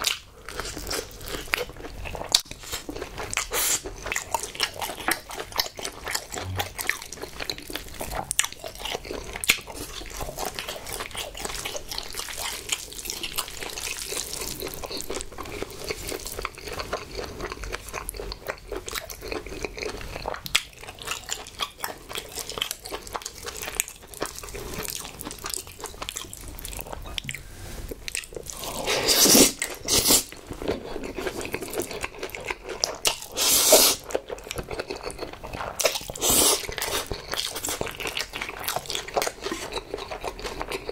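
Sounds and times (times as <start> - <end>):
wet sticky chewing: 0.0 - 40.9
noodle slurps: 28.6 - 30.3, 33.3 - 34.0, 36.1 - 37.1.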